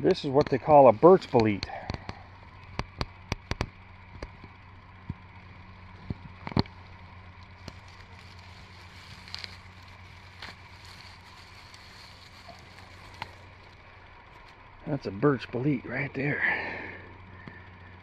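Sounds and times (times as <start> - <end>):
faint steady hum: 0.0 - 18.0
hand rustling through moss: 6.8 - 14.7.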